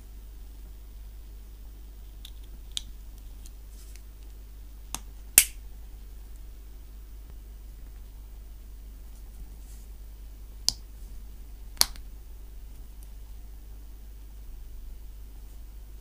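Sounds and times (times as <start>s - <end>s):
plastic parts snapping together: 4.9s - 5.6s.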